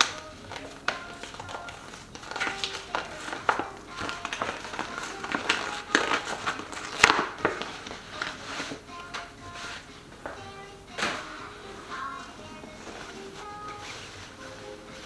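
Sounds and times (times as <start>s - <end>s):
packaging rustling and crinkling: 0.0s - 8.8s
quiet background music: 0.0s - 15.0s.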